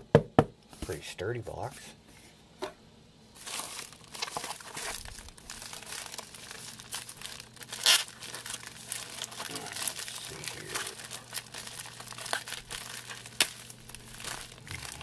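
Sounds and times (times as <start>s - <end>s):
plastic mailer crinkling: 3.4s - 15.0s.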